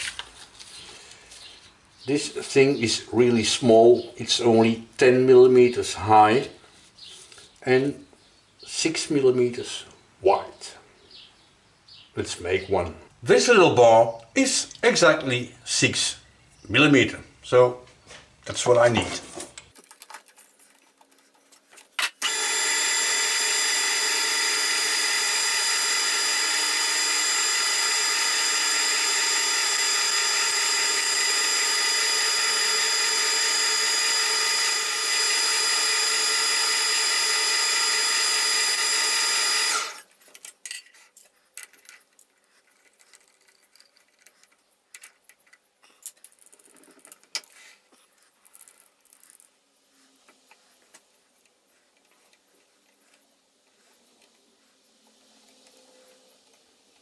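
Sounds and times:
metal lathe running: 22.2 - 40.0.

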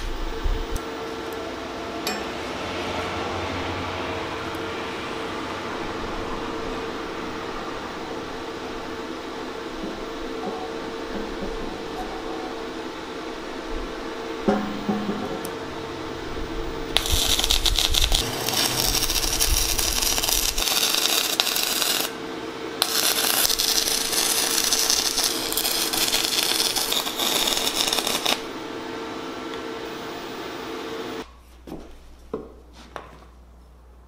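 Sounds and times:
steady hum: 0.0 - 32.7
welding arc crackling: 16.4 - 22.2, 22.8 - 28.8.

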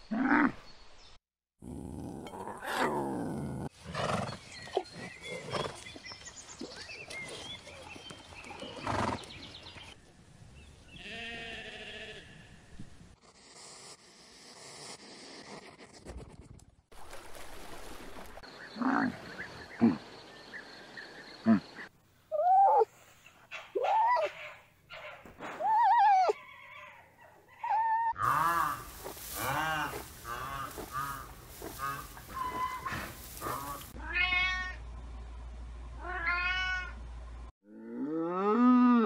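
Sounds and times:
animal cries rising and falling: 22.3 - 22.9, 25.4 - 31.2.

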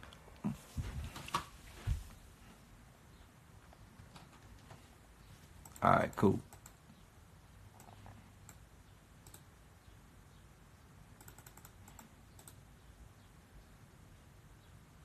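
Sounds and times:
faint clicks: 9.2 - 9.5, 11.2 - 12.6.

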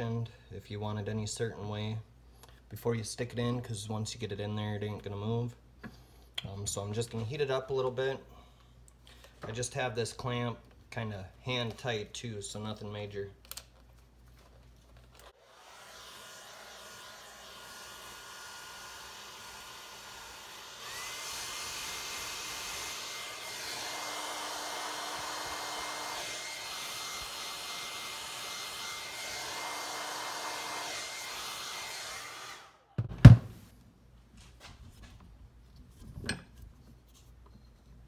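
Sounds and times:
hair dryer blowing: 15.4 - 32.9.

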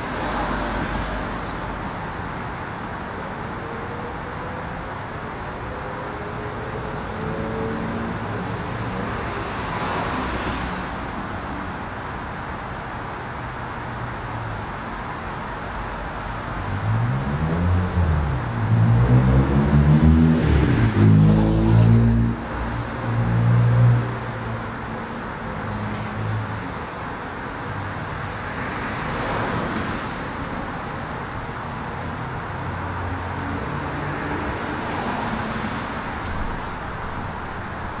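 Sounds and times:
vehicle engine revving past: 16.9 - 22.4
steady rushing noise: 33.7 - 38.0.

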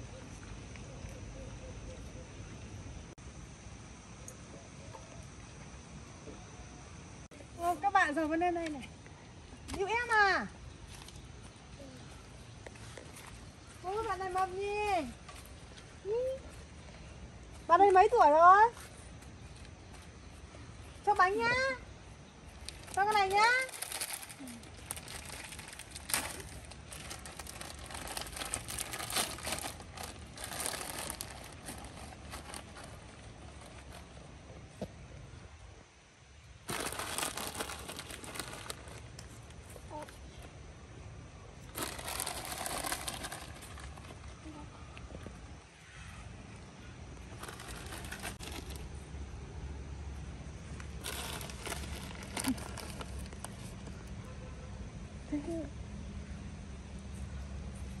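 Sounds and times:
plastic wrappers crinkling: 22.6 - 34.2, 36.6 - 39.7, 41.7 - 44.4, 47.2 - 49.0, 50.9 - 54.0.

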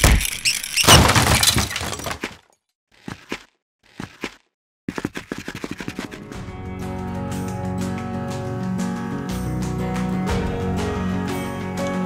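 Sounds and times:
glass shattering: 0.0 - 2.2.

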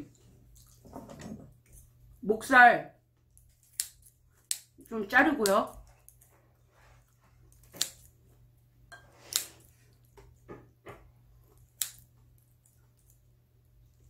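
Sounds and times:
scissors snipping meat: 3.5 - 4.8, 7.6 - 8.1, 11.8 - 12.1.

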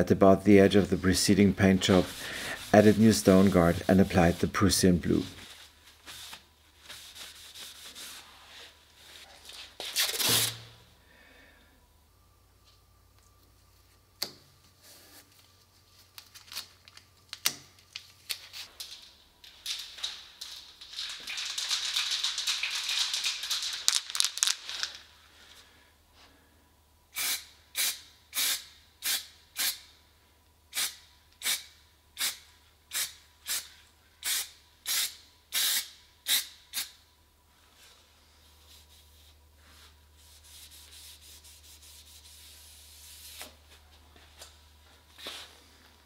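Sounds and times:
masking tape tearing off roll: 9.8 - 10.7
aerosol spray can bursts: 27.2 - 29.8, 34.2 - 36.9.

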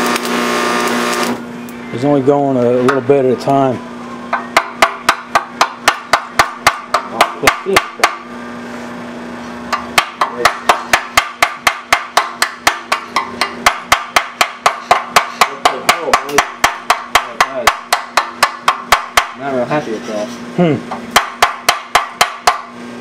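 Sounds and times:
hammer striking metal: 4.3 - 8.3, 9.7 - 19.5, 21.0 - 22.7.

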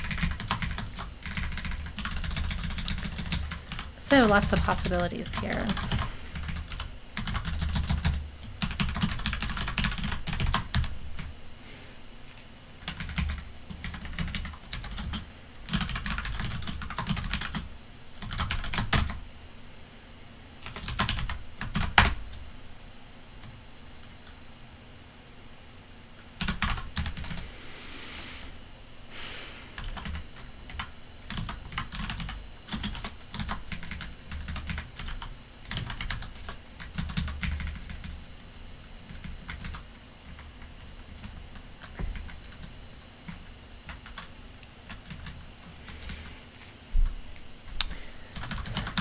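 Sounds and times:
typing on computer keyboard: 0.0 - 4.7, 5.3 - 11.3, 12.8 - 19.2, 20.6 - 22.2, 26.4 - 27.4, 29.8 - 38.2, 39.0 - 45.4, 48.3 - 49.0.

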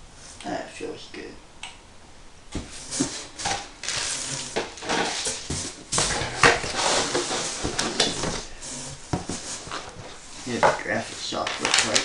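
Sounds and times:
plastic wrap and paper crinkling: 2.9 - 12.0.

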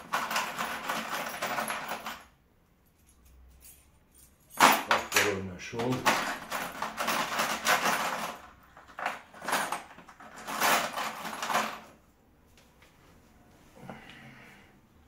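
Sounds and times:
screws rattling and clinking: 0.0 - 2.3, 2.9 - 12.0.

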